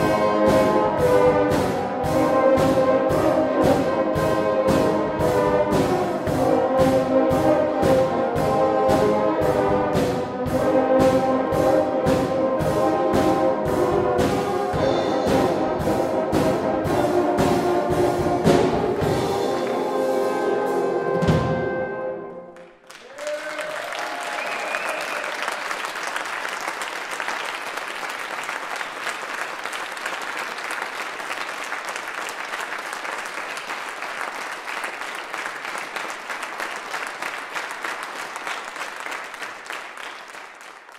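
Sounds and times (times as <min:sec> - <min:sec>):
french horn ensemble playing chords: 0:00.0 - 0:22.6
audience applauding: 0:22.6 - 0:40.9
audience cheering: 0:22.8 - 0:40.4.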